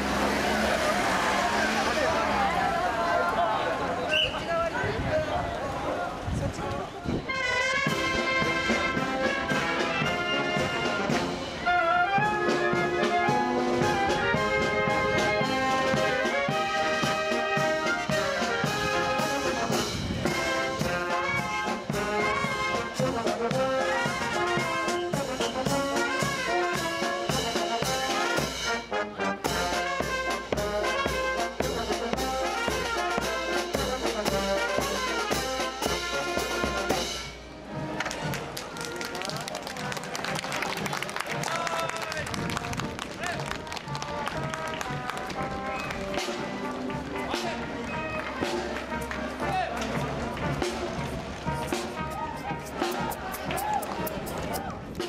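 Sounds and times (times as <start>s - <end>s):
marching band playing: 7.2s - 55.0s
snare drums: 7.6s - 38.5s, 43.2s - 55.0s
bass drum: 29.5s - 37.0s, 48.4s - 55.0s
cymbals: 45.5s - 54.7s.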